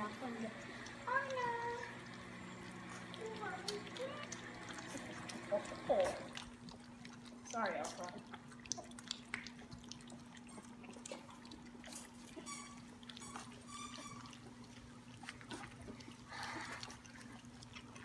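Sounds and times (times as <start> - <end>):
puppies lapping and slurping: 0.0 - 18.0
high puppy squeaks: 11.9 - 14.6.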